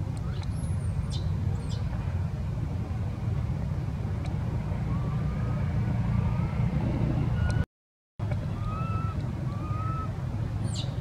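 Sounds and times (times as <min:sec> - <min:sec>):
steady low rumble: 0:00.0 - 0:07.6.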